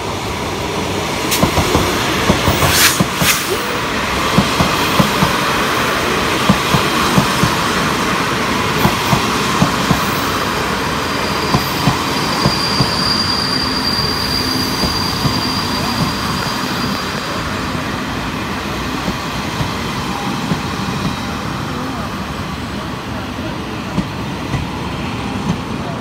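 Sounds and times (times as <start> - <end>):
train wheels clicking over rail joints: 1.3 - 3.6, 6.4 - 7.9, 8.7 - 10.3
high wheel squeal: 10.2 - 17.6.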